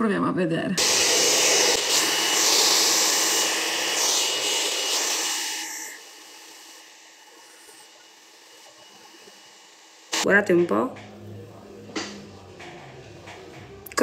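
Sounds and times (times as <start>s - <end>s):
hair dryer blowing: 0.8s - 10.4s.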